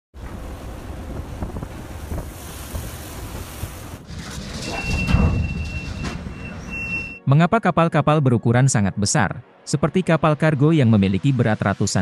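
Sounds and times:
rush of heavy sea: 0.2 - 4.2
storm wind buffeting microphone: 0.2 - 6.1
thin high whistle: 4.7 - 7.2.

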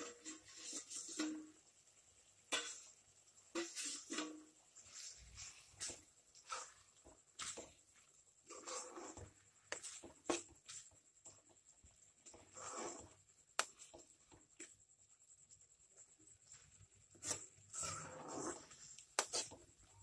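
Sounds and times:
spatula scraping thick food: 0.0 - 1.3, 2.5 - 14.7, 16.4 - 20.0.

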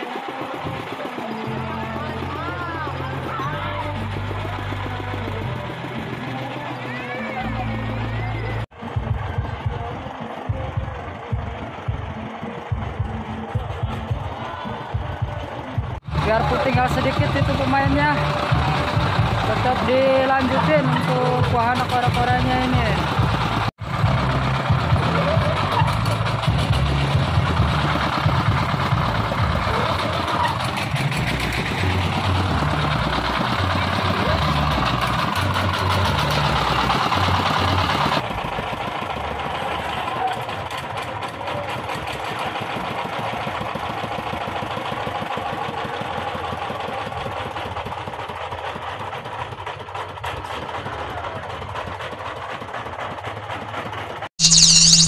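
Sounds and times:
stationary engine running: 0.0 - 14.4, 15.0 - 40.5, 54.4 - 55.0
fairground noise: 0.0 - 55.0.

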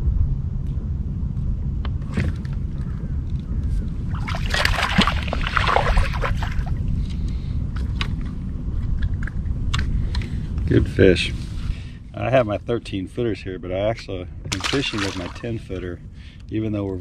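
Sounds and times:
wind and water rumble: 0.0 - 17.0
fish splashing: 4.1 - 6.8, 14.5 - 15.6.

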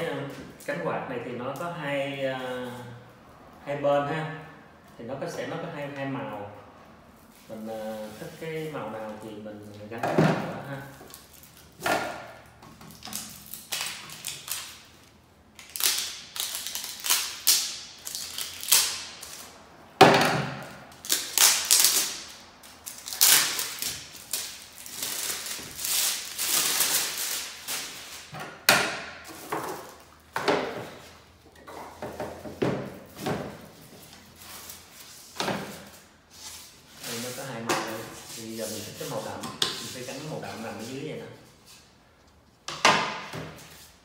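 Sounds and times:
packaging rustling and scraping: 29.2 - 30.1.

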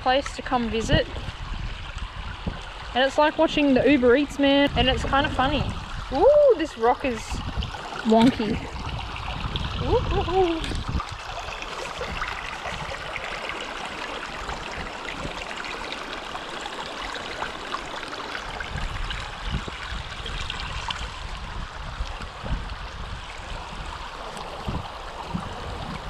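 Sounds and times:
creek water trickling over rocks: 0.0 - 26.0
soft low thumps: 24.6 - 26.0.

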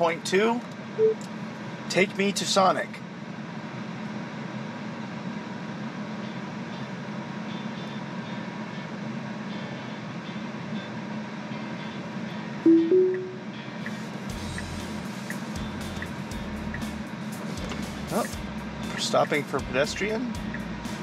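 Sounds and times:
loud two-note chime: 12.7 - 13.6.

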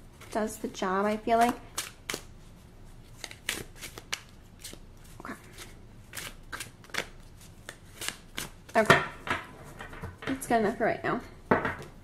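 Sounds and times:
cards being shuffled: 0.1 - 2.4, 3.0 - 8.9.

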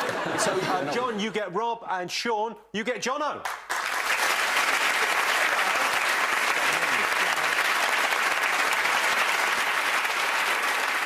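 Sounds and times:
audience applauding: 3.4 - 11.0.

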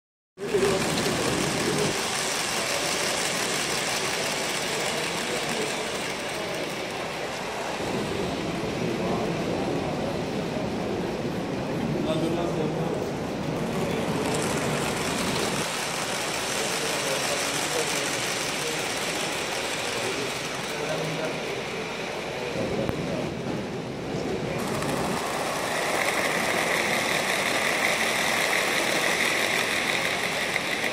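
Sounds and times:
model locomotive motor: 0.4 - 7.8, 13.6 - 22.5, 24.6 - 30.9
model train wheels on rails: 0.4 - 30.9.

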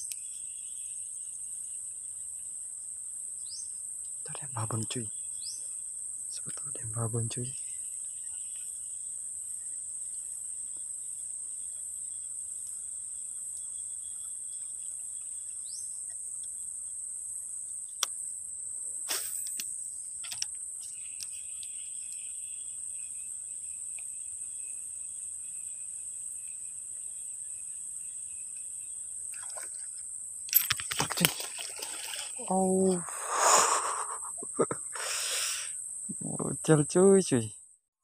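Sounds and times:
high-pitched insect chorus: 0.0 - 37.6
low insect tone: 0.0 - 37.8
fishing line and lure rustling: 29.3 - 32.4.

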